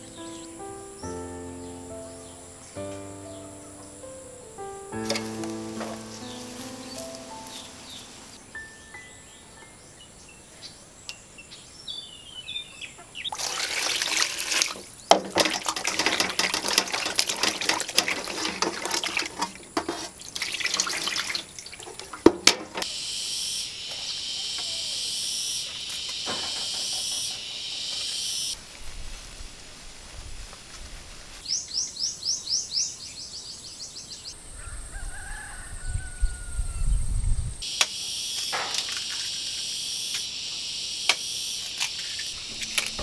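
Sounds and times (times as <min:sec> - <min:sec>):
bird chirps: 0:00.0 - 0:13.4
tap running: 0:05.0 - 0:07.6, 0:13.4 - 0:22.9
water splashing in basin: 0:13.3 - 0:22.5, 0:38.6 - 0:39.6.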